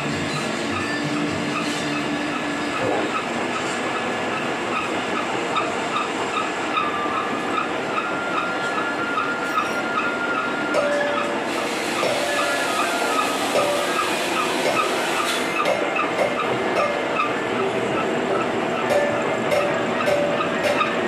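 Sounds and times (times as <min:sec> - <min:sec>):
cutting machine clattering: 0:10.8 - 0:21.0.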